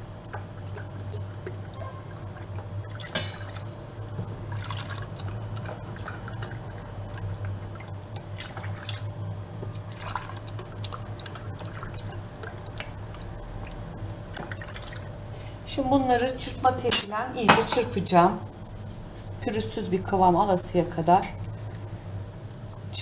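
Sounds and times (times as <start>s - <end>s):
milk pouring and splashing: 4.3s - 9.1s, 9.7s - 13.8s, 14.4s - 15.1s.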